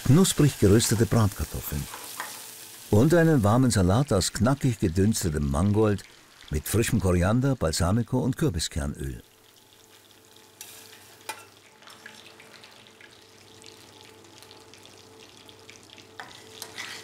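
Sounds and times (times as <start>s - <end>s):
butter sizzling in frying pan: 0.0s - 7.4s, 9.2s - 17.0s
cutlery clicking on plate: 10.6s - 11.5s.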